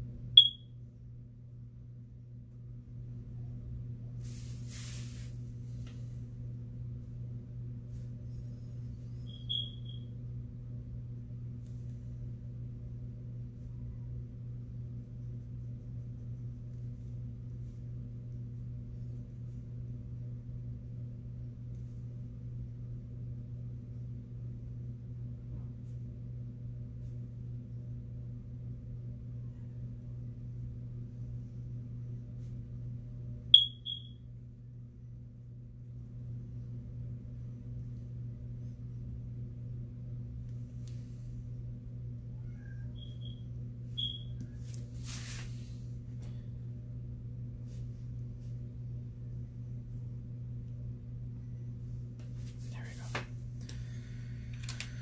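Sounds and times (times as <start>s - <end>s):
steady low hum: 0.0s - 55.0s
short high electronic beeps: 0.4s - 0.6s, 9.3s - 10.0s, 33.6s - 34.2s, 44.0s - 44.3s.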